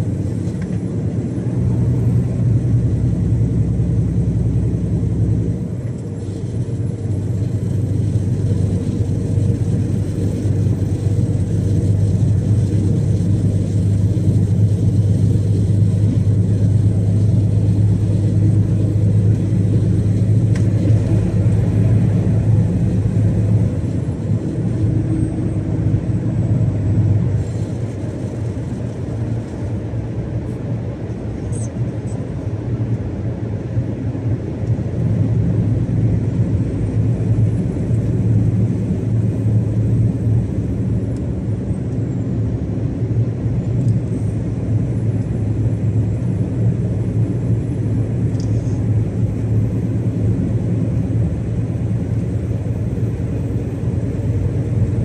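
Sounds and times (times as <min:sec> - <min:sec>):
truck engine droning: 0:00.0 - 0:33.6.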